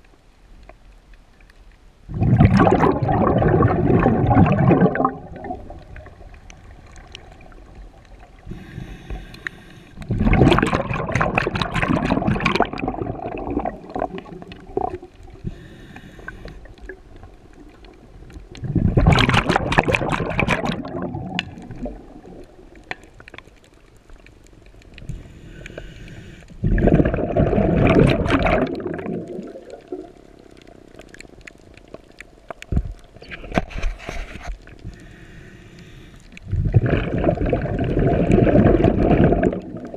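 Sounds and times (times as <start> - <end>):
gurgling exhaled bubbles: 2.1 - 9.4, 10.0 - 23.4, 26.5 - 31.8, 36.2 - 39.9
faint regulator hiss: 6.9 - 10.1, 15.3 - 18.5, 23.8 - 26.6, 32.4 - 36.4.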